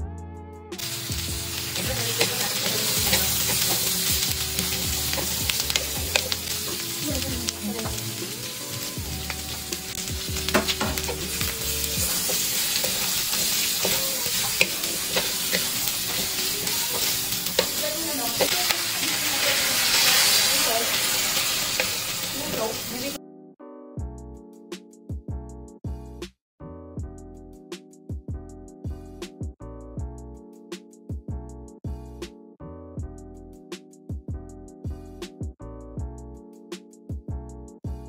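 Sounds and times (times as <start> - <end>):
vegetables sizzling in a wok: 0.8 - 23.2.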